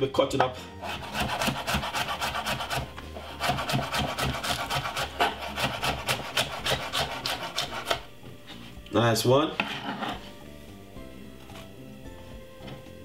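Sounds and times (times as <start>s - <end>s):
knife chopping on wooden board: 0.8s - 8.1s.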